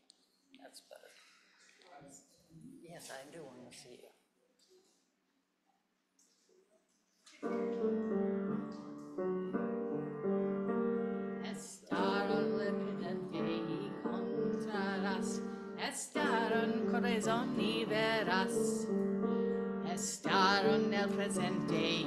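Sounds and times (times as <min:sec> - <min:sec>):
piano playing: 0:07.4 - 0:22.0
woman singing: 0:11.3 - 0:22.0.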